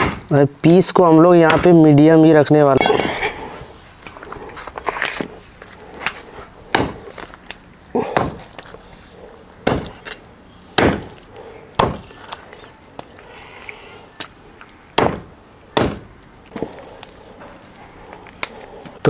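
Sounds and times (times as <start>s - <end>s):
cleaver chopping on wooden block: 1.4s - 1.7s, 6.7s - 7.0s, 8.0s - 8.5s, 9.6s - 10.2s, 10.8s - 11.2s, 11.8s - 12.1s, 15.0s - 16.7s.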